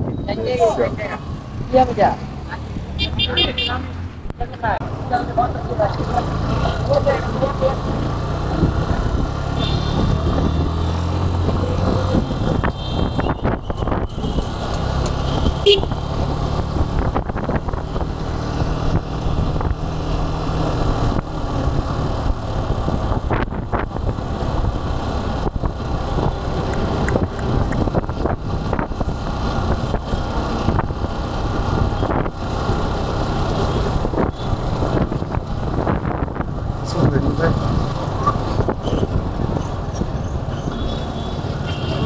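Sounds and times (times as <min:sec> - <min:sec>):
road noise: 0:00.0 - 0:42.0
wind buffeting microphone: 0:10.0 - 0:15.6, 0:16.4 - 0:40.5.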